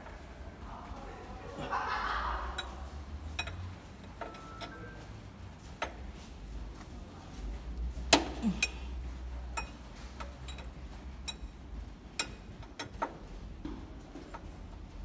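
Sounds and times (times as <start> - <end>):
spanner clicking on metal fittings: 3.4 - 4.4, 12.2 - 13.2.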